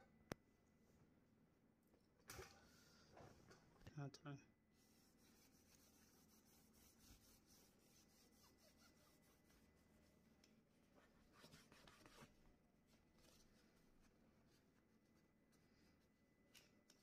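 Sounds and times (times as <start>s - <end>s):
tissue rubbing on metal element: 4.8s - 10.3s, 10.9s - 12.4s.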